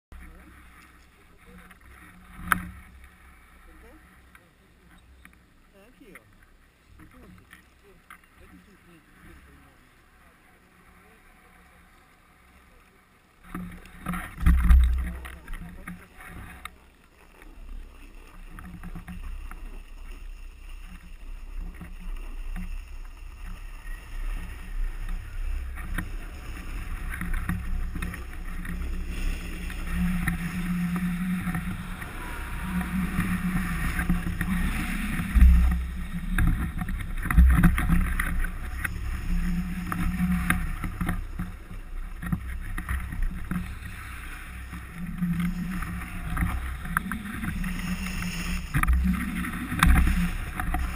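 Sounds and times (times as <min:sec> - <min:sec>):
snowboard scraping over snow: 0:17.3 - 0:50.9
low bumps: 0:17.4 - 0:50.9.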